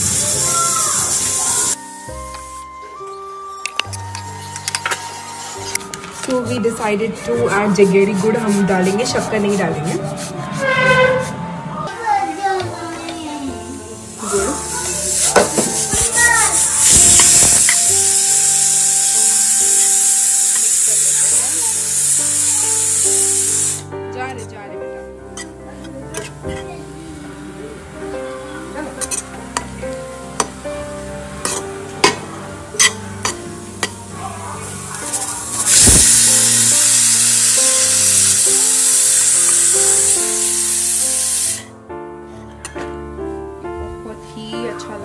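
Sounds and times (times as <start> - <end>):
food sizzling in oil: 0.0 - 2.8, 3.5 - 10.2, 12.0 - 23.9, 28.5 - 41.7
background music with held notes: 0.0 - 45.0
spatula stirring in wok: 4.2 - 11.4.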